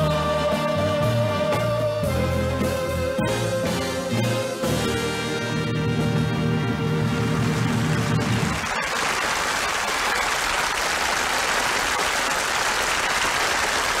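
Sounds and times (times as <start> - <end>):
audience applauding: 7.2 - 14.0.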